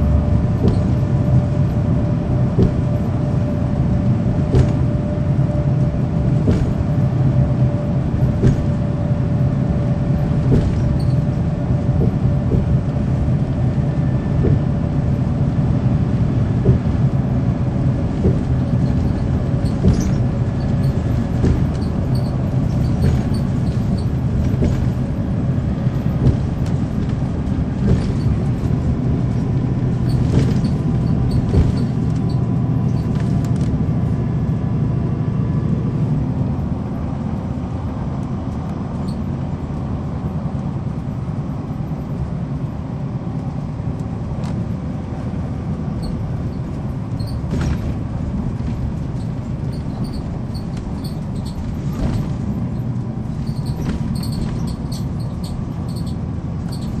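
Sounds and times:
bus engine droning: 0.0 - 57.0.

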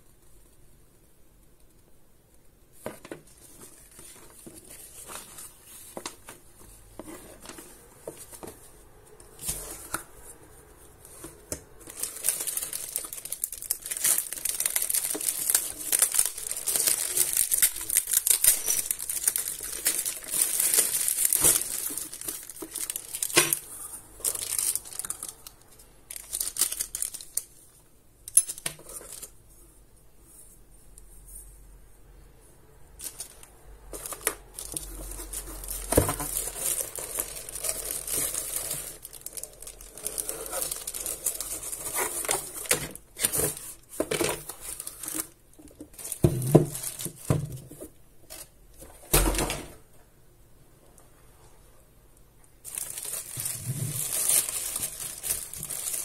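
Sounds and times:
plastic bags crinkling: 11.2 - 27.8, 33.0 - 47.5, 52.6 - 56.0.

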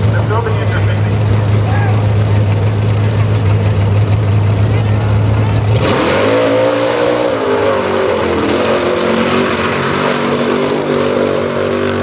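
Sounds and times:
buggy engine revving hard: 4.0 - 12.0.

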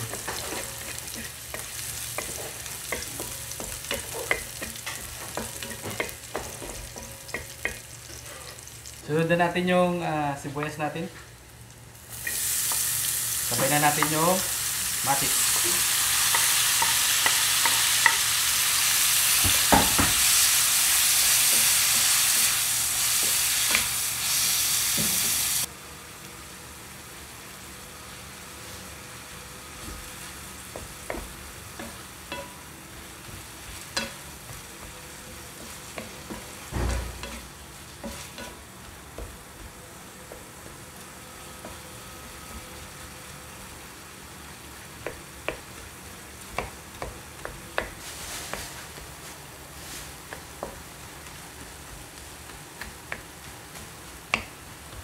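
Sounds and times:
spatula tapping and scraping pan: 0.0 - 8.2, 30.7 - 32.6, 33.2 - 39.7
vegetables sizzling in hot oil: 0.0 - 55.0
low thump: 36.7 - 37.2.

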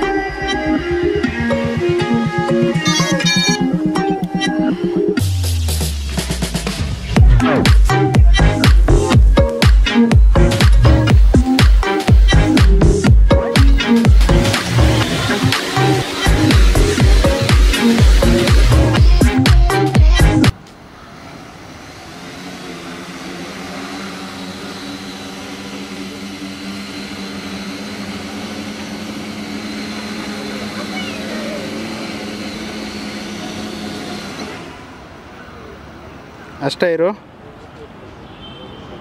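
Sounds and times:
electronic dance music: 0.0 - 20.6
quadcopter motors buzzing: 7.4 - 35.3
thin high whine: 20.9 - 35.2.

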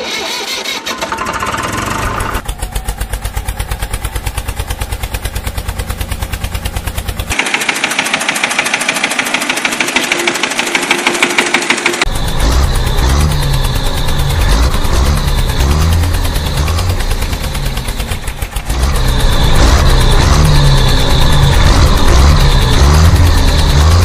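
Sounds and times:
tractor engine putter: 0.0 - 4.1, 6.8 - 24.0.

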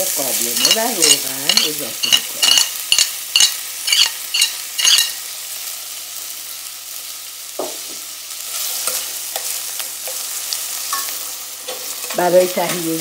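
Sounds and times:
onion sizzling in hot oil: 0.0 - 13.0
spoon scraping a metal pot: 0.5 - 5.2
spoon clinking on china plate: 0.6 - 5.2.

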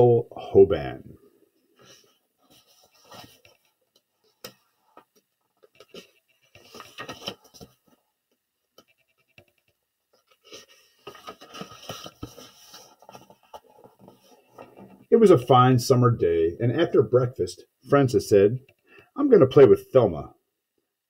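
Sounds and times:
book pages turning: 1.8 - 8.0, 8.7 - 15.1.

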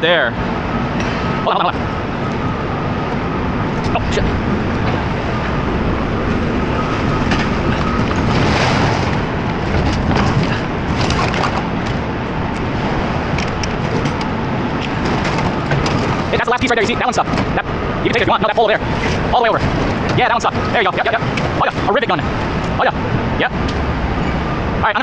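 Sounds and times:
truck engine rumbling: 0.0 - 25.0
junk scraping and clattering: 3.8 - 22.8.

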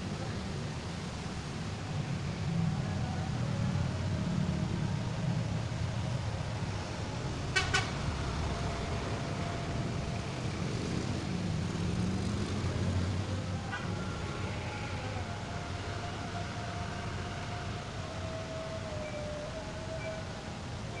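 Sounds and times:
road traffic rumble: 0.0 - 21.0
vehicle horn double toot: 7.5 - 8.0.

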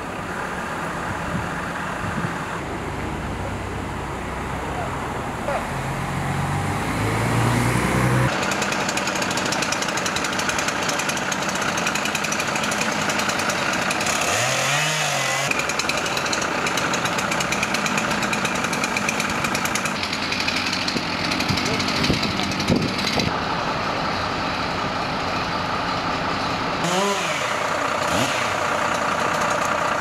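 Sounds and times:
chainsaw running: 6.3 - 23.4, 26.8 - 30.0.

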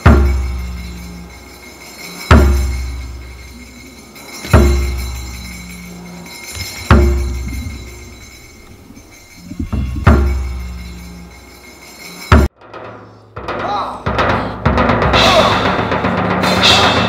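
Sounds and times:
deep ringing percussive hits: 0.0 - 17.0
high sustained tone: 0.6 - 12.4.

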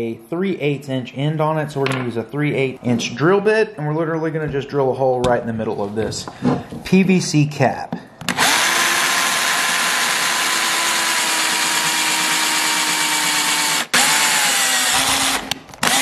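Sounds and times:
power drill whining: 8.3 - 16.0.

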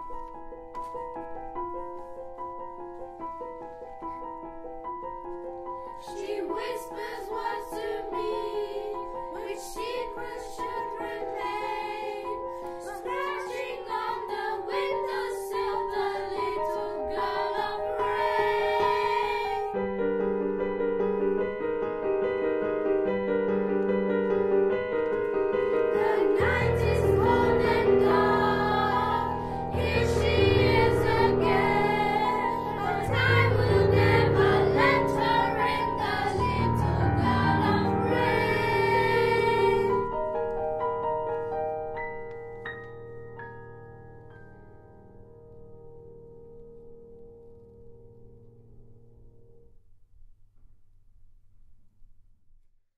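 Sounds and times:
piano accompaniment: 0.0 - 49.7
children's choir singing: 5.9 - 19.7, 25.8 - 40.3.

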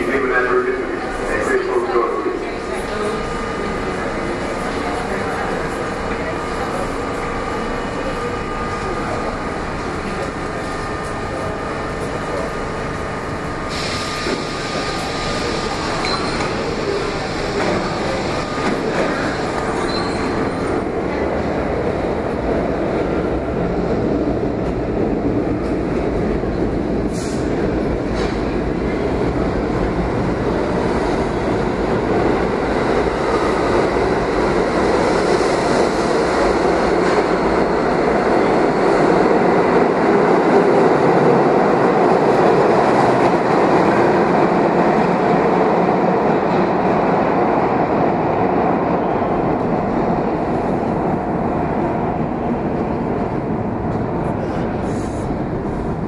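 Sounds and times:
subway train hum and hiss: 0.0 - 56.0
train running noise: 0.0 - 56.0
wheel squeals: 19.7 - 20.5.

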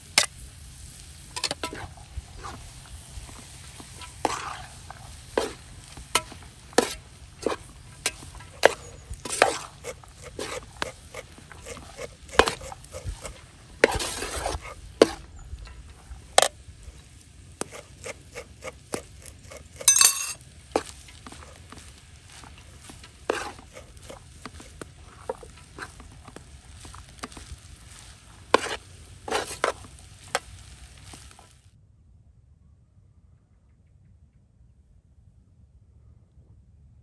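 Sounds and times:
metal skimmer scraping metal pan: 1.3 - 2.6, 3.3 - 16.6, 17.6 - 30.6.

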